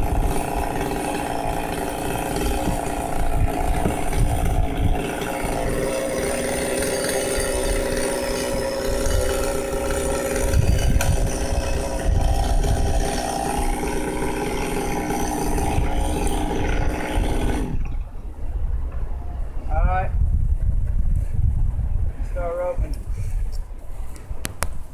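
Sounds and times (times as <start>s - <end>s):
chainsaw engine running: 0.0s - 17.9s.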